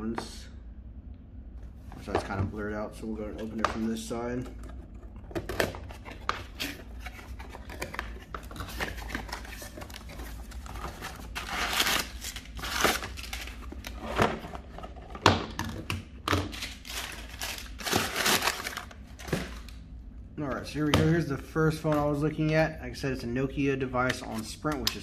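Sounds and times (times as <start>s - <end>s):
packing paper crinkling: 5.4s - 14.2s, 16.4s - 19.8s.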